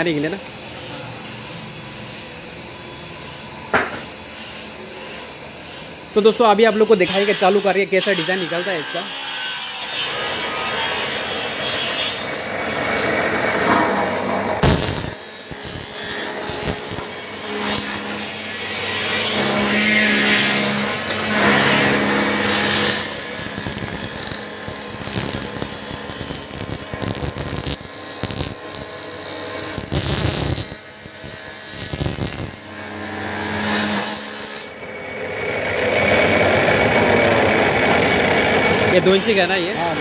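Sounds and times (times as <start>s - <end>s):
cutter heads cutting wood: 3.7s - 40.0s
wood moulding machine motor hum: 11.0s - 40.0s.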